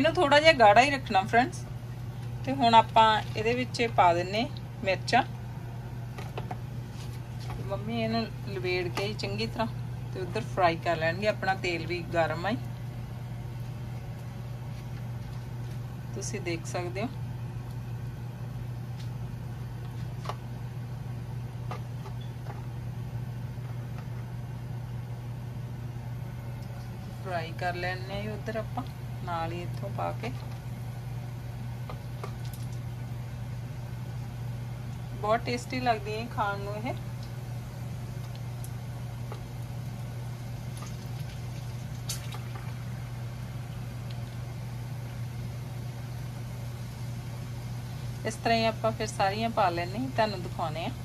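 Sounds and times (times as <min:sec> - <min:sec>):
low mechanical hum: 0:00.0 - 0:51.0.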